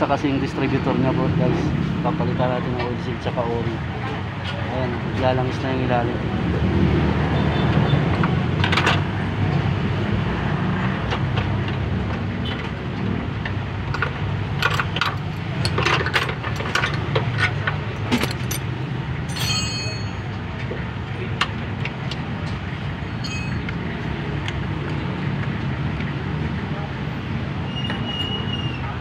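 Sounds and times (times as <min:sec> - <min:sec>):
short ringing jingle: 0:19.3 - 0:20.3, 0:23.2 - 0:23.6.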